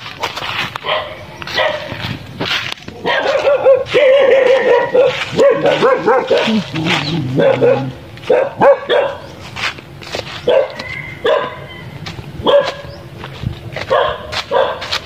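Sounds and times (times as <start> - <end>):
dog barking: 0.8 - 2.0, 3.0 - 9.3, 10.4 - 11.7, 12.4 - 12.9, 13.8 - 15.0.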